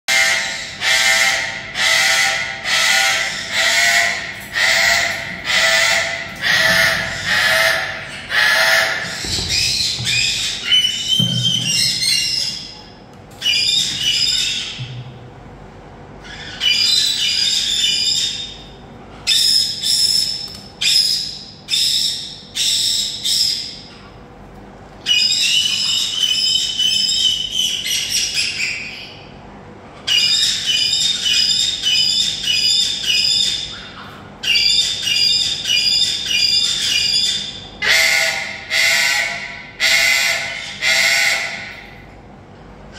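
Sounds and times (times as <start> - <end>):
parrot chick squawking: 0.1 - 14.8, 30.0 - 42.0.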